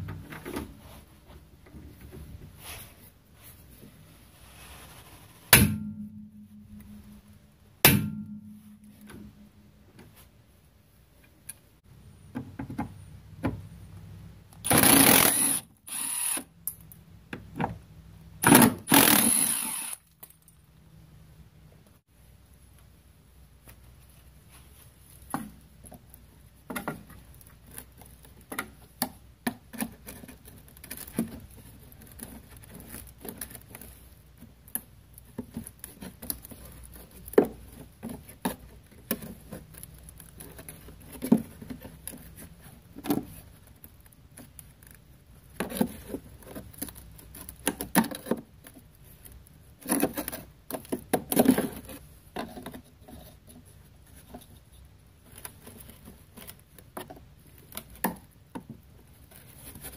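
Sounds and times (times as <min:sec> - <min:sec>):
screwdriver prying and scraping: 0:14.7 - 0:16.5, 0:18.4 - 0:20.4.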